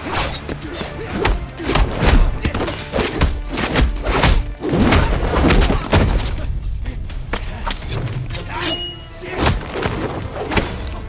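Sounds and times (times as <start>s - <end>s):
action music: 0.0s - 11.0s
punch impacts with deep thuds: 1.2s - 6.4s.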